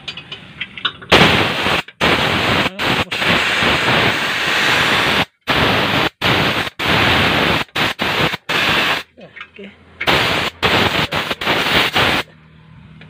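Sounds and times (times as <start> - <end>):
compressed air hissing from valve: 1.1 - 9.0, 10.0 - 12.2.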